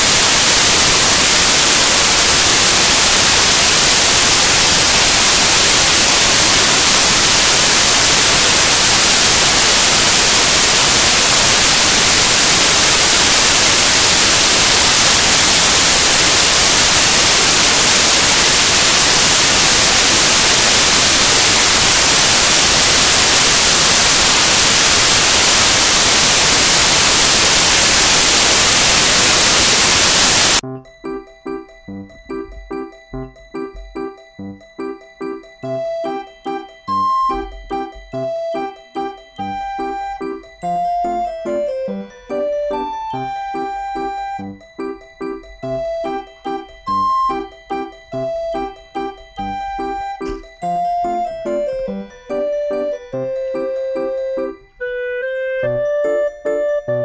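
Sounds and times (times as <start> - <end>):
loud steady hiss: 0.0 - 30.6.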